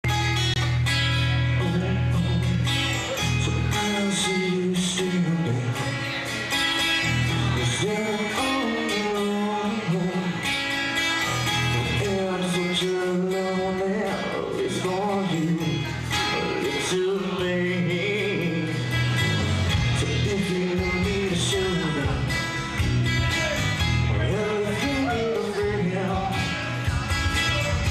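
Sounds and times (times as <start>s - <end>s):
electric guitars: 0.0s - 27.9s
strummed guitar: 0.0s - 27.9s
person singing: 0.1s - 27.9s.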